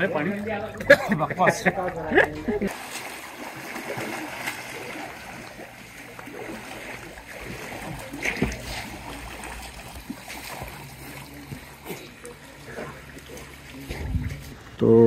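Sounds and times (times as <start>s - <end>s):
pool water splashing: 0.0s - 15.0s.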